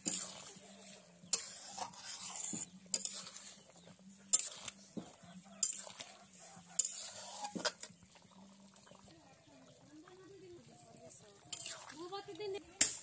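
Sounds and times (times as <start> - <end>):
metal spatula scraping a pot: 0.0 - 8.0, 11.4 - 12.0.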